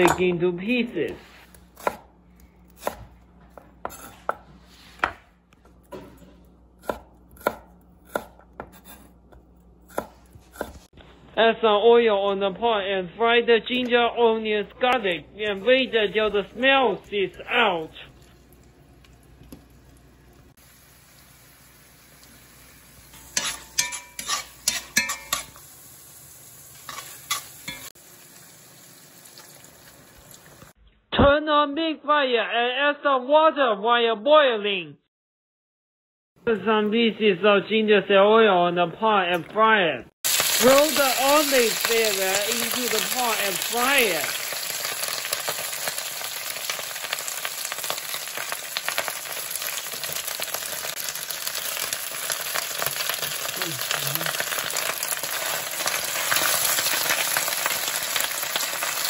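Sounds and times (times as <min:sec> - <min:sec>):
faint sizzling: 0:15.4 - 0:30.8
spoon scraping frying pan: 0:23.2 - 0:25.6, 0:26.8 - 0:27.9.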